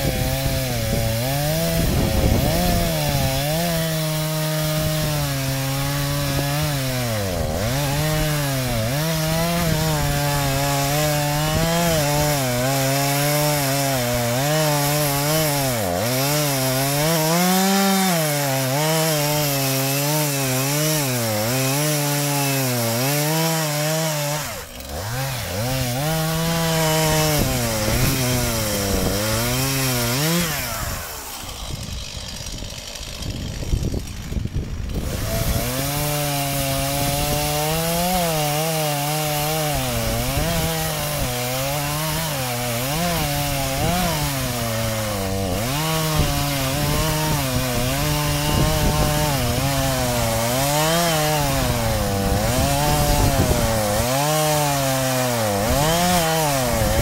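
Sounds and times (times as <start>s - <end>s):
chainsaw cutting wood: 0.0s - 57.0s.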